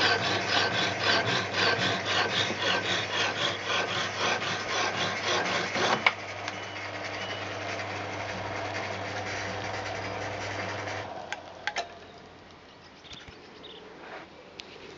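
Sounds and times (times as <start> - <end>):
hacksaw blade rasping: 0.0 - 6.1
motor humming: 0.0 - 12.6.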